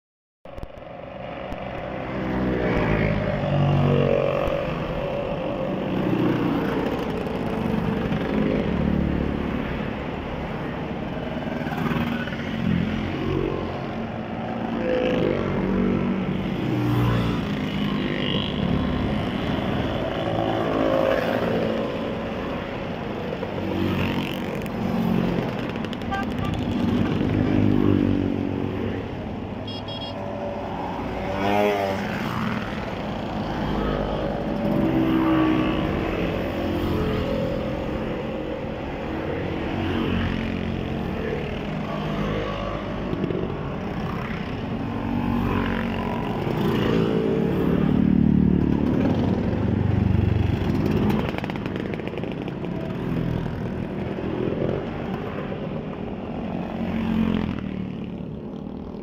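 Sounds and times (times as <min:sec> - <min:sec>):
motor scooters riding past: 0:11.6 - 0:59.0
car passing: 0:14.8 - 0:44.4.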